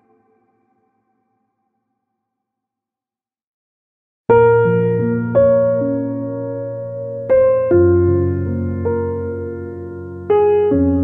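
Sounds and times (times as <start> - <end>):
slow piano music: 4.3 - 11.0.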